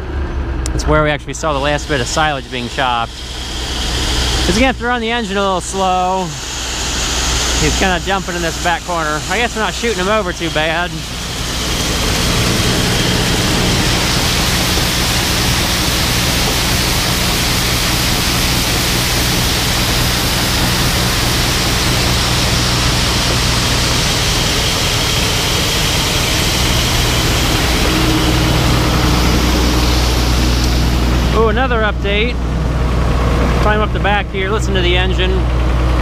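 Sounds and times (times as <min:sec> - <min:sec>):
combine engine hum: 0:00.0 - 0:36.0
grain pouring hiss: 0:01.4 - 0:31.6.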